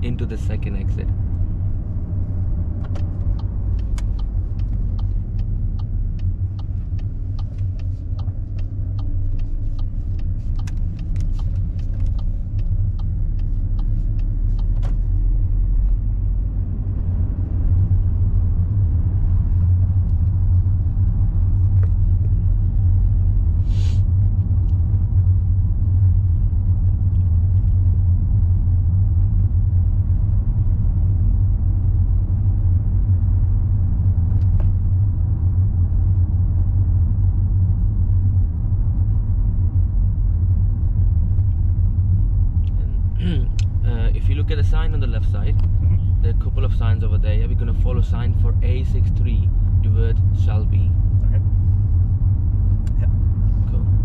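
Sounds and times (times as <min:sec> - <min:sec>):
car engine and road rumble: 0:00.0 - 0:54.0
turn indicator ticking: 0:00.0 - 0:54.0.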